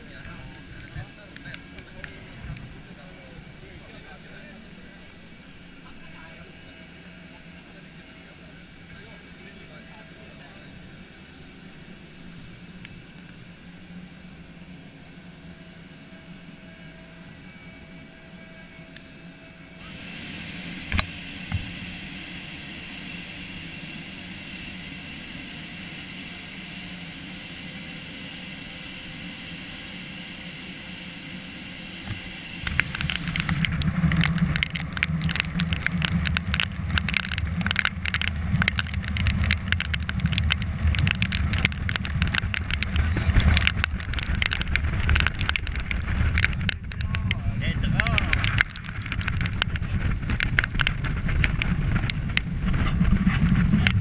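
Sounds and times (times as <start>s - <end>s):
boat engine hiss and hum: 0.0s - 54.0s
wind buffeting microphone: 32.1s - 54.0s.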